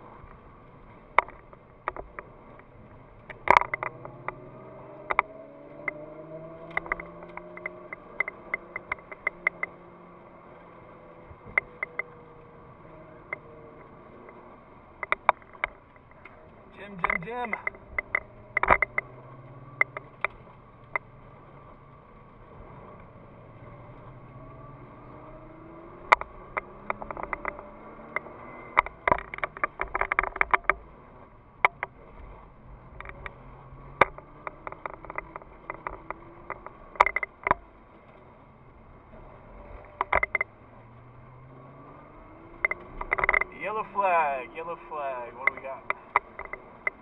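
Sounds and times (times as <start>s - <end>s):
car engine accelerating: 0.0s - 47.0s
sharp clicks and knocks: 1.1s - 10.0s, 11.2s - 12.4s, 13.1s - 21.1s, 25.0s - 30.9s, 31.6s - 32.3s, 32.9s - 38.2s, 39.6s - 40.8s, 41.9s - 47.0s.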